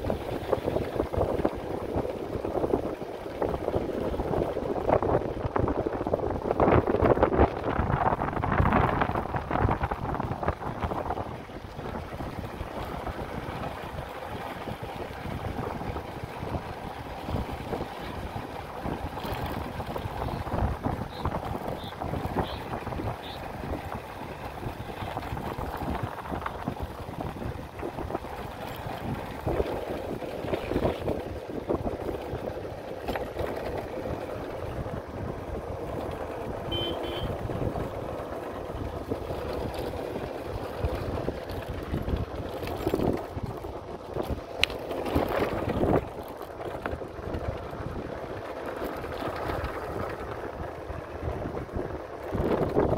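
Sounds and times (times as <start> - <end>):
motorcycle engine running: 0.0 - 52.9
wind buffeting microphone: 0.0 - 52.9.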